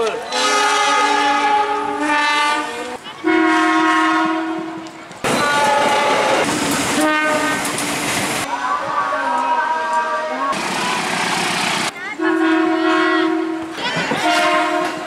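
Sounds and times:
train horns sounding chords: 0.3s - 7.6s, 12.2s - 15.0s
train wheels on rails: 4.2s - 12.6s, 13.5s - 15.0s.

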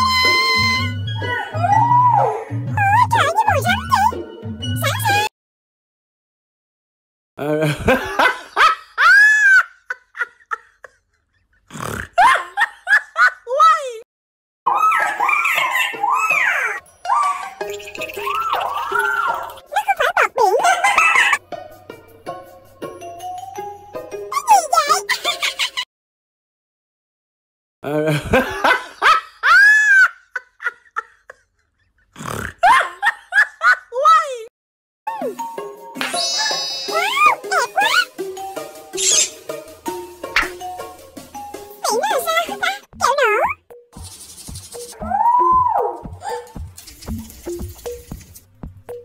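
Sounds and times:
high-pitched whimpering and yelps: 45.0s - 46.6s.

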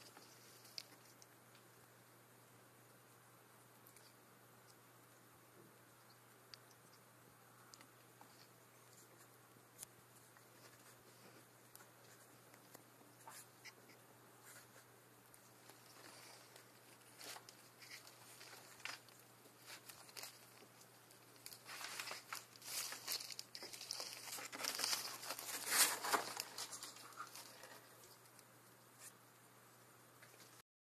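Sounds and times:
iguana chewing and crunching: 15.4s - 28.8s
leaf tearing: 21.4s - 27.8s.

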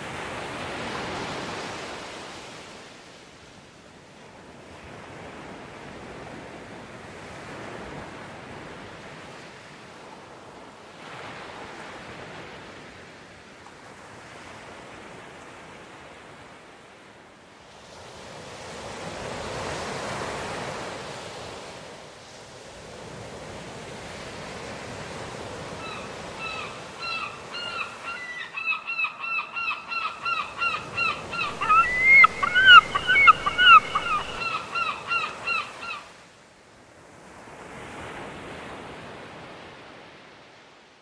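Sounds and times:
surf washing: 17.8s - 36.1s
gull squawking: 26.4s - 36.0s.

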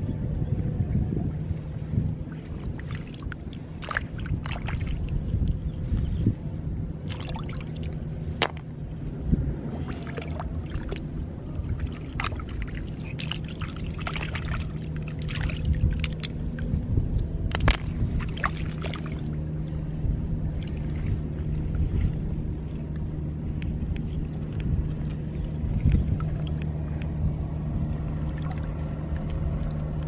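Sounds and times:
faint low hum: 0.0s - 30.0s
hands splashing in water: 2.4s - 5.2s, 7.0s - 8.7s, 11.7s - 16.4s, 17.5s - 19.3s
water trickling: 7.0s - 23.0s, 23.9s - 30.0s.

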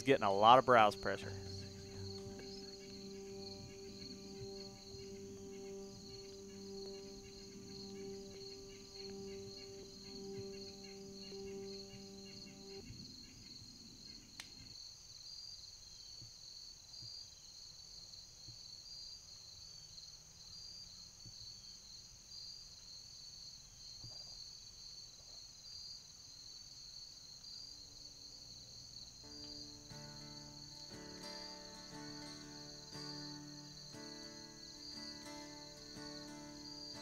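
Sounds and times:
music: 0.0s - 13.6s, 29.2s - 37.0s
crickets trilling: 0.0s - 37.0s.

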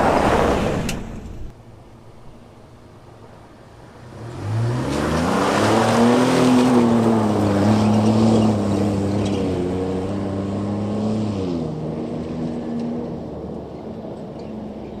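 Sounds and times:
truck engine revving: 3.7s - 15.0s.

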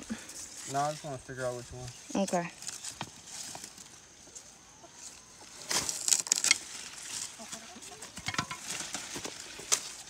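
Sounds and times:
rustling leaves: 0.0s - 10.0s
loppers snapping cane: 5.7s - 6.7s.

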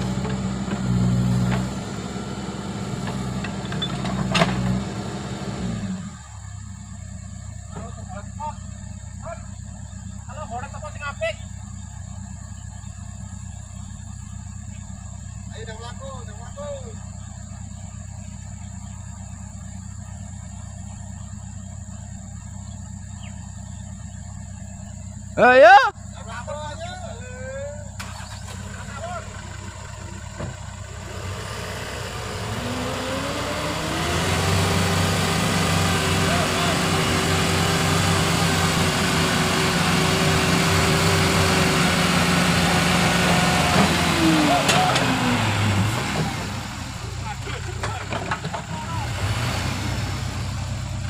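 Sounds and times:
diesel engine running: 0.0s - 51.0s.

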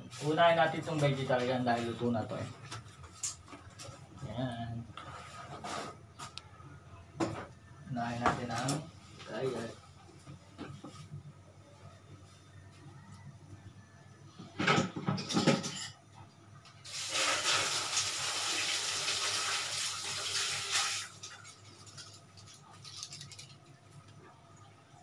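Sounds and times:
running water: 16.9s - 23.7s.

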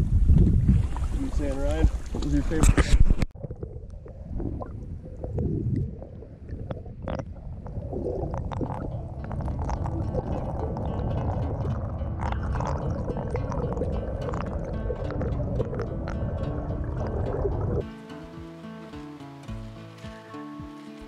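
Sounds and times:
underwater gurgling and sloshing: 0.0s - 17.8s
low underwater rumble: 3.0s - 17.8s
paddle stroking through water: 7.9s - 17.9s.

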